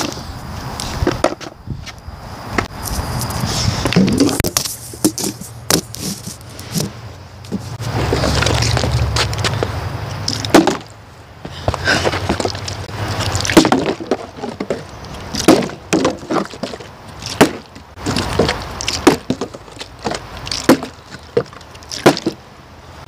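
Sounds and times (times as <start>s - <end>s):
plastic bottle knocks and bumps: 10.5s - 10.9s, 13.5s - 16.8s, 17.4s - 22.4s.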